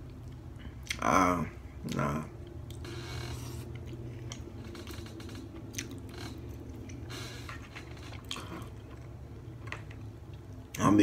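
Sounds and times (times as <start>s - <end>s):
steady low hum: 0.0s - 11.0s
chewing food: 5.6s - 7.1s.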